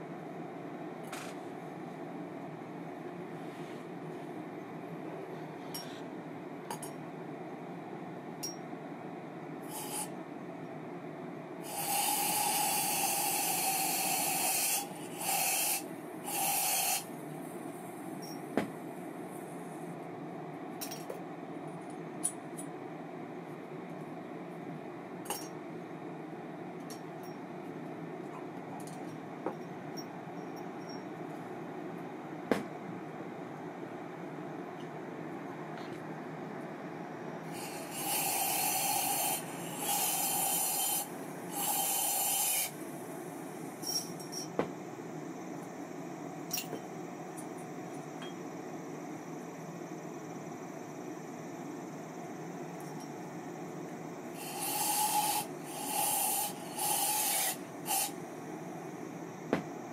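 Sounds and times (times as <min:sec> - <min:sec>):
spray hiss: 0:37.6 - 0:42.8, 0:54.4 - 0:58.2.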